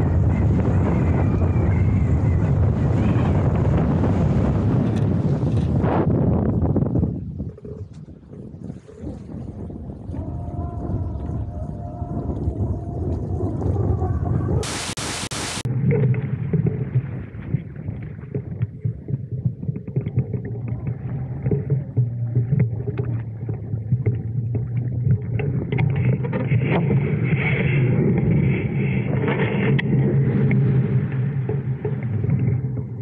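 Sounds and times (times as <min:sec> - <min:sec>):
wind buffeting a camera: 0:00.0 - 0:33.0
loud hiss burst: 0:14.6 - 0:15.7.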